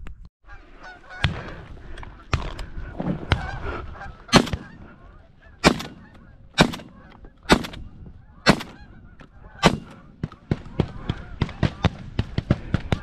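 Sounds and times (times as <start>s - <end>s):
geese honking: 0.5s - 12.0s
shotgun blasts: 4.3s - 4.9s, 5.6s - 9.0s, 9.6s - 13.0s.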